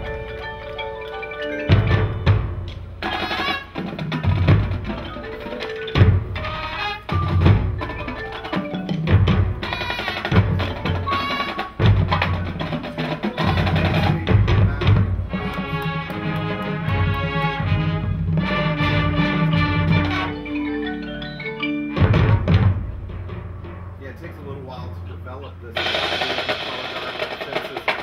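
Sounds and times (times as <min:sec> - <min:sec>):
mallet percussion: 0:00.0 - 0:25.1, 0:25.8 - 0:28.0
drum hits: 0:01.7 - 0:20.4, 0:21.9 - 0:25.1, 0:25.8 - 0:28.0.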